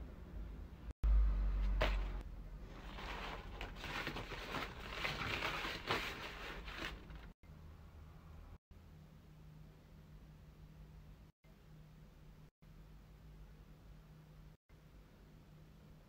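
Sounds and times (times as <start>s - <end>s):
paper crackling and rustling: 2.7s - 7.4s.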